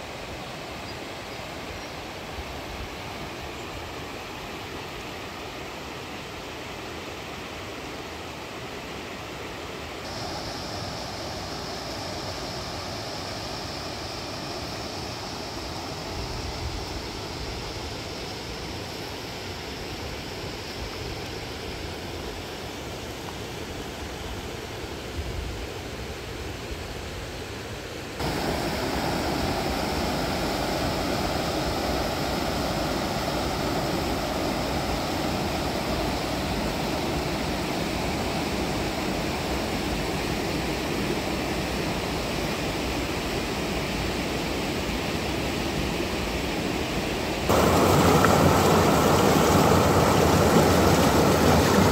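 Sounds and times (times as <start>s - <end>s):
river water rushing over rocks: 28.2s - 39.2s, 47.4s - 51.9s.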